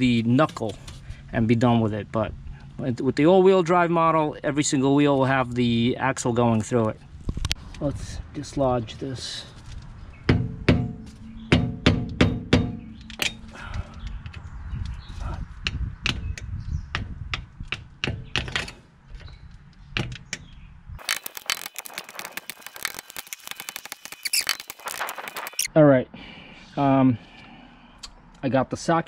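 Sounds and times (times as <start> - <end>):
small clicks and scrapes: 21.0 - 25.7.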